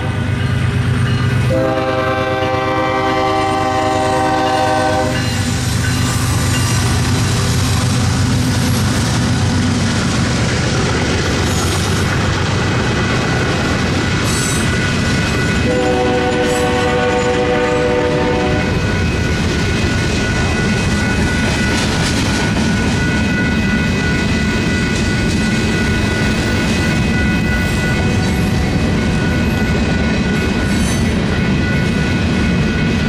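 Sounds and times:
multi-note train horn: 0:01.5 - 0:05.4, 0:15.6 - 0:18.8
train wheels clacking over rail joints: 0:04.4 - 0:33.0.

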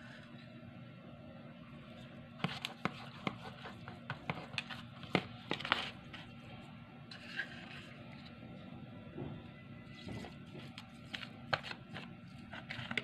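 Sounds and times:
soft scrape: 0:07.1 - 0:08.4.

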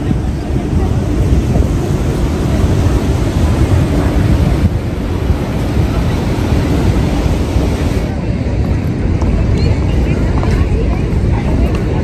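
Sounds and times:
roar of rushing water: 0:00.0 - 0:09.3
wind buffeting microphone: 0:00.0 - 0:12.0.

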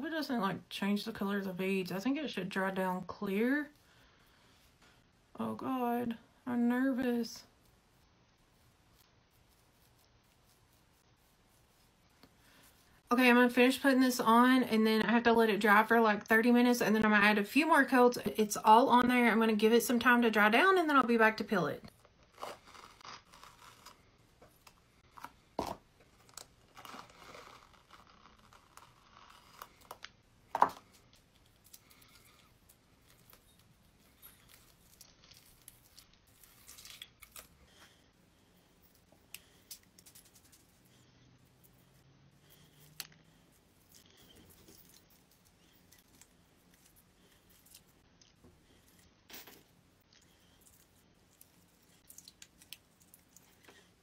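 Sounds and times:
mask peeling from skin: 0:22.2 - 0:24.8, 0:26.1 - 0:30.1.

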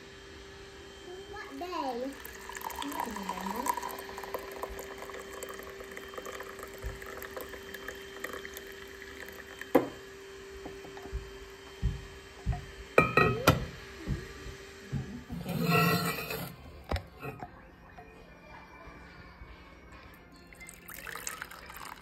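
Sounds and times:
drink pouring into mug: 0:02.1 - 0:10.0, 0:15.3 - 0:17.4, 0:20.4 - 0:22.0.

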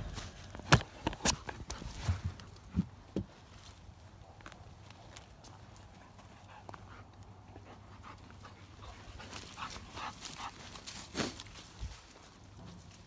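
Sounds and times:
dog sniffing the ground: 0:04.8 - 0:13.0.

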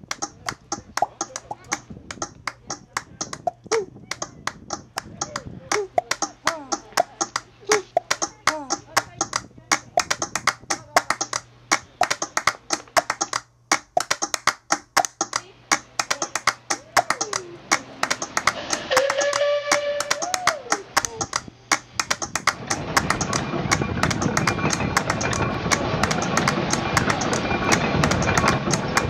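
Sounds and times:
sharp clicks and taps: 0:00.0 - 0:29.0
steady rushing noise: 0:00.0 - 0:29.0
sliding voice-like tone: 0:02.5 - 0:09.4.

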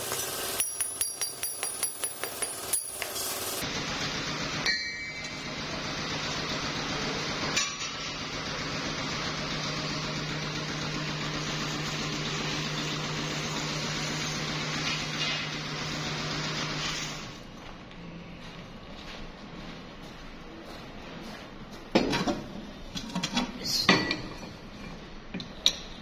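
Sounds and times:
workshop machine humming: 0:00.0 - 0:18.6.

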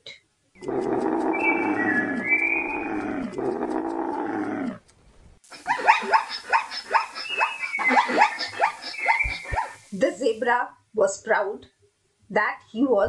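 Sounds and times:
animal growling call: 0:00.6 - 0:04.9
short falling yelps: 0:05.6 - 0:09.8.

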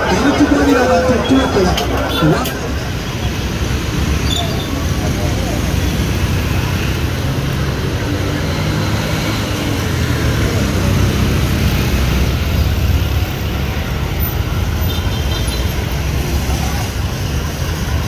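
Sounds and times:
motorcycles and cars passing: 0:00.0 - 0:18.0.

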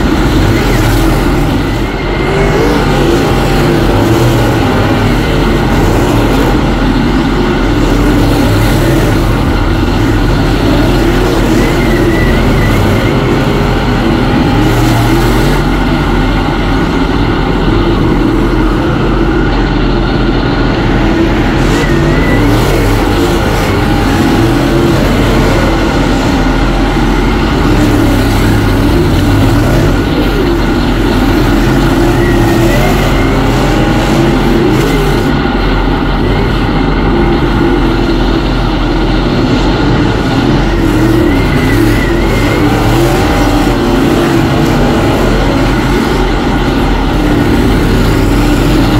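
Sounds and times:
race car engines at high revs: 0:00.0 - 0:48.9.

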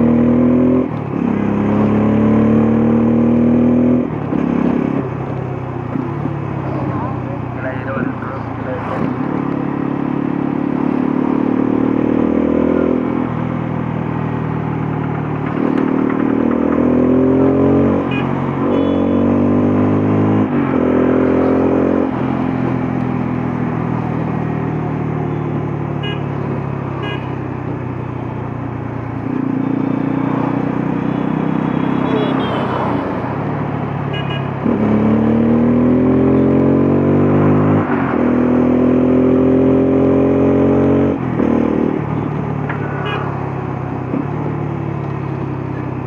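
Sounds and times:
motorcycle engine accelerating: 0:00.0 - 0:07.3, 0:08.9 - 0:32.6, 0:33.2 - 0:42.6.

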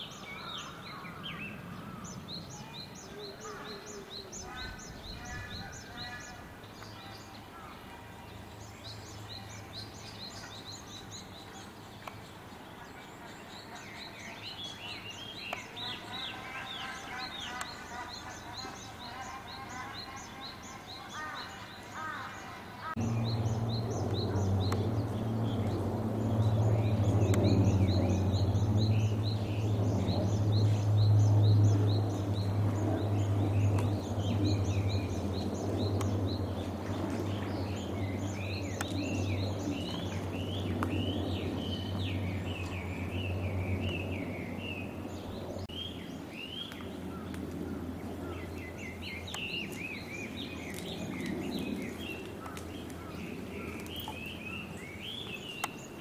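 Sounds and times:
small birds chirping: 0:00.0 - 0:56.0
steady low hum: 0:22.9 - 0:55.0.

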